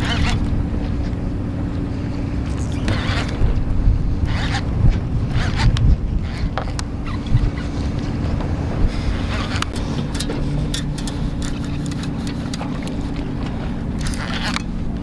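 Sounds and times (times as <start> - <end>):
wind rumble on microphone: 0.0 - 15.0
fishing reel winding: 9.3 - 12.7, 14.0 - 14.7.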